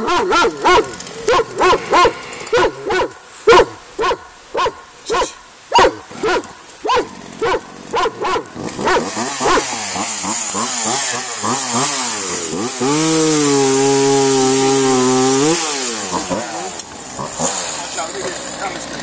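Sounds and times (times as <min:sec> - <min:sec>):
chainsaw revving and cutting log: 0:00.0 - 0:03.6, 0:06.0 - 0:19.0
dog barking: 0:00.0 - 0:09.6.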